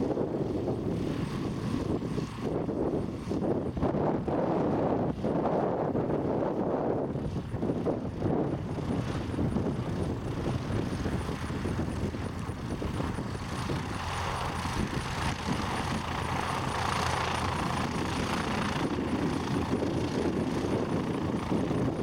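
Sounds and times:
propeller plane engine droning: 0.0 - 22.0.

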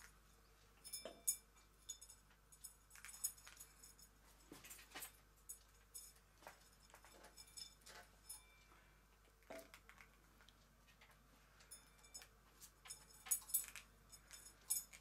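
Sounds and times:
small objects clinking on table: 0.8 - 8.5, 11.7 - 15.0.

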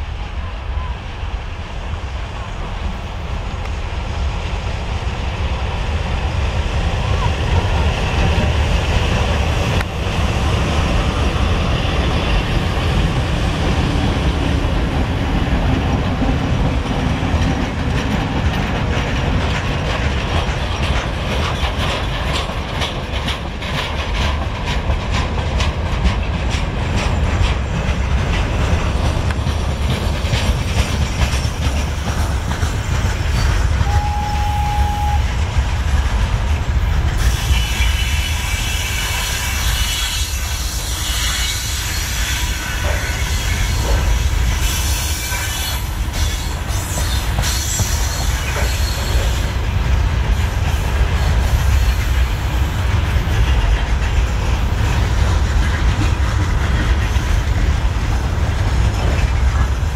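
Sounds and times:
freight train rumble: 0.0 - 59.9
wheels clacking over rail joints: 11.6 - 34.5, 35.1 - 59.9.

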